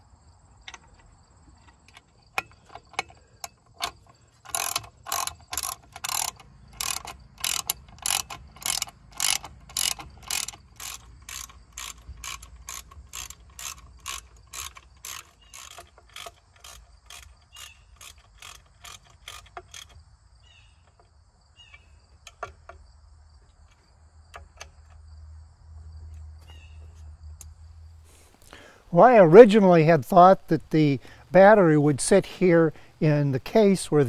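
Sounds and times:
ratchet wrench clicking: 1.8s - 20.0s.

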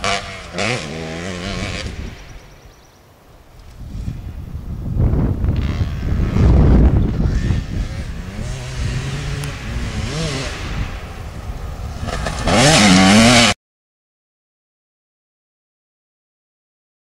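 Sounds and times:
dirt bike engine revving: 0.0s - 2.6s, 5.2s - 13.6s.

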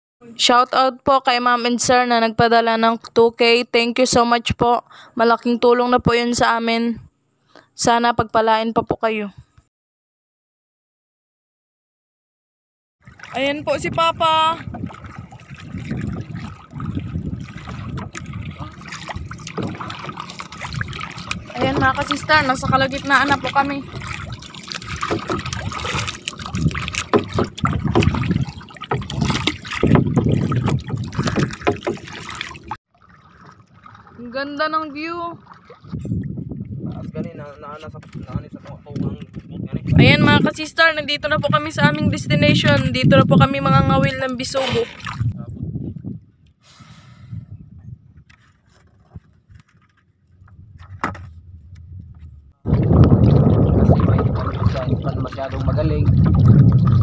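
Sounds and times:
paddles splashing in water: 13.0s - 36.8s, 44.2s - 45.4s, 52.7s - 57.0s.

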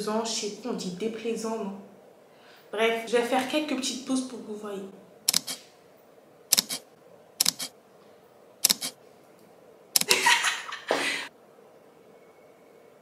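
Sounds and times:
camera shutter clicking: 5.3s - 5.6s, 6.5s - 7.7s, 8.6s - 9.0s, 10.0s - 10.2s.

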